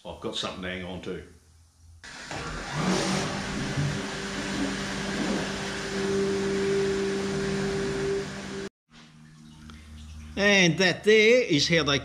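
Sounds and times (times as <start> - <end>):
steady hum: 2.0 - 8.7.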